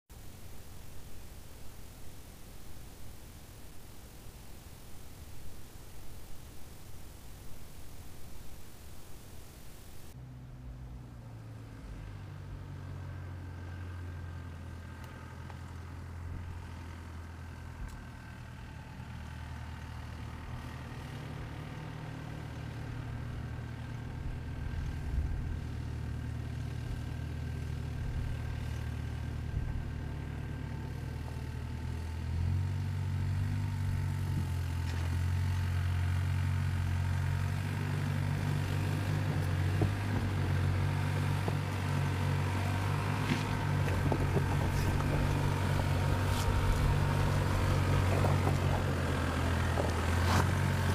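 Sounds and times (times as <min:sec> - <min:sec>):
car engine running at low speed: 0:00.1 - 0:50.9
stones crunching under tyres: 0:42.8 - 0:50.9.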